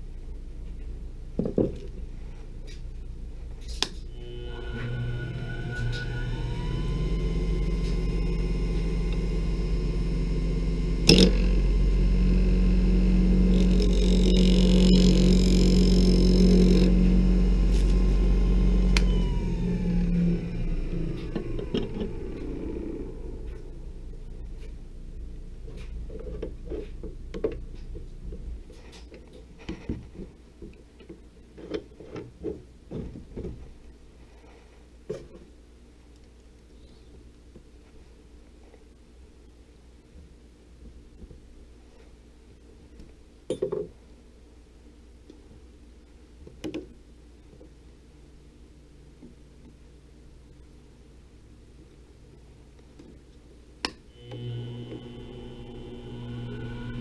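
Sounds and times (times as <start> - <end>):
low hum: 0.0 - 29.0, 54.1 - 57.0
wood lathe motor whine: 4.1 - 23.8, 54.1 - 57.0.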